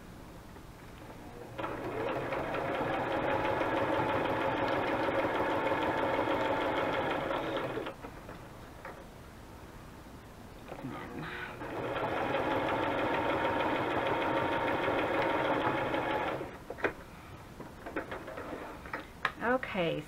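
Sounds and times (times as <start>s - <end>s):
sewing machine stitching: 1.4s - 8.0s, 11.6s - 16.6s.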